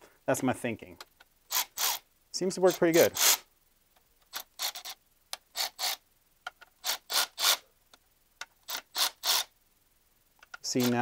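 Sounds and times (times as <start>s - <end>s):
ratcheting wrench rasping: 1.5s - 2.0s, 2.7s - 3.5s, 4.3s - 6.0s, 6.8s - 7.6s, 8.7s - 9.5s, 10.6s - 11.0s.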